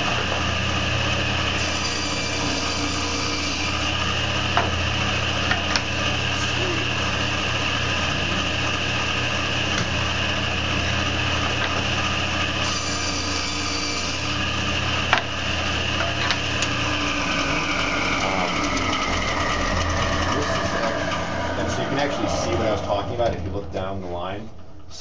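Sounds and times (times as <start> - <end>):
table saw running: 0.0 - 24.0
saw blade cutting wood: 1.5 - 4.8, 11.4 - 21.3.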